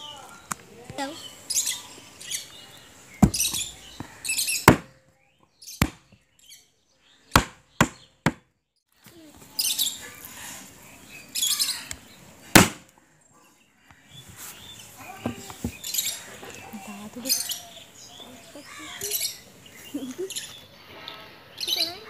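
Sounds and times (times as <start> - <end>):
cleaver chopping on wooden board: 3.2 - 5.0, 5.8 - 6.2, 7.3 - 8.5, 12.6 - 12.9.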